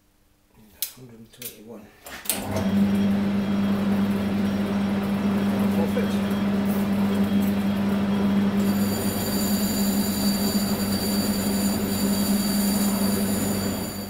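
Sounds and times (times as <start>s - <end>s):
lathe geared-drive hum: 2.4s - 14.0s
high-pitched cutting whine: 5.4s - 14.0s.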